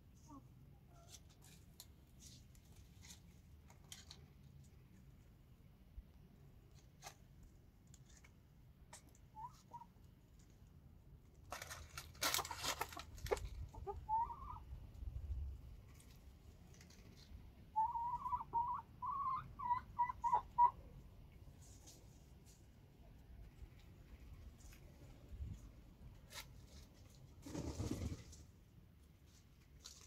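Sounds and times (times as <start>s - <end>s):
rustling: 0.9s - 5.2s, 11.3s - 13.8s, 15.8s - 17.4s, 23.4s - 30.0s
chickens clucking: 12.3s - 14.7s, 16.9s - 21.0s.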